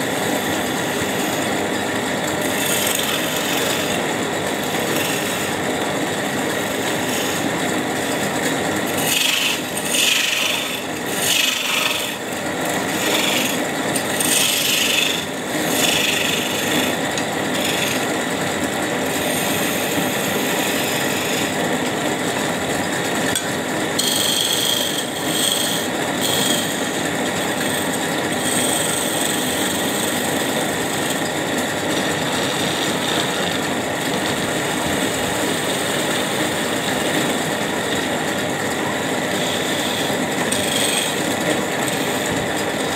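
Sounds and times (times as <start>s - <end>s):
chisel scraping wood on lathe: 0.0s - 42.9s
wood lathe running: 0.0s - 42.9s.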